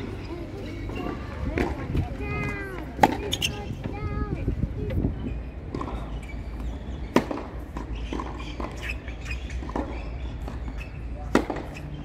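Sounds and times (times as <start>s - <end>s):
racket striking tennis ball: 3.0s - 3.3s, 7.1s - 11.8s.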